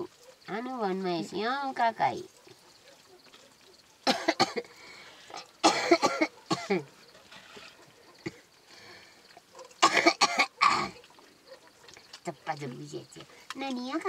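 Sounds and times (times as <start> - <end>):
person coughing: 4.1 - 4.7, 5.6 - 6.9, 9.8 - 11.0.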